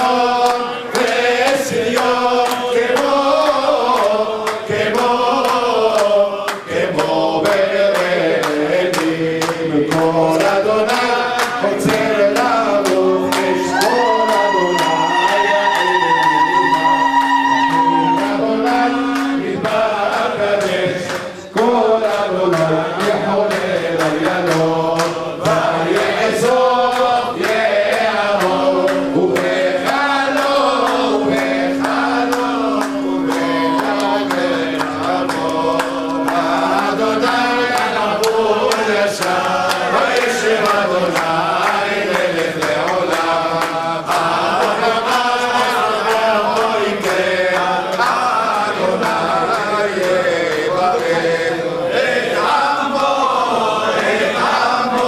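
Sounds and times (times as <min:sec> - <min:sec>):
men singing a chant: 0:00.0 - 0:55.0
amplified lead voice: 0:09.7 - 0:46.8
held drone note: 0:10.8 - 0:49.9.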